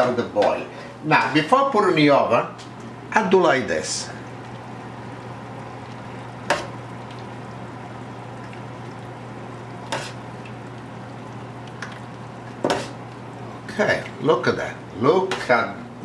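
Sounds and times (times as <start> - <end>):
low steady hum: 0.0 - 16.0
gravy sizzling in a pan: 4.2 - 15.7.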